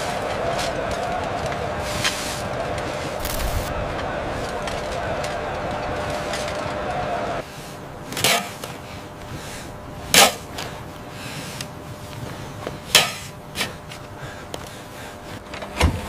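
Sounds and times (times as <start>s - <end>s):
shovels and picks striking earth: 3.2s - 3.7s.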